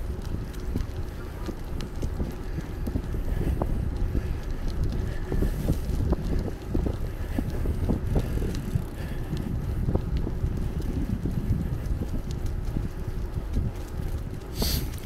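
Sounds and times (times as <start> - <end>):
bicycle tyre rumble: 0.0 - 15.0
bike clicks and rattles: 0.0 - 15.0
wind buffeting microphone: 0.0 - 15.0.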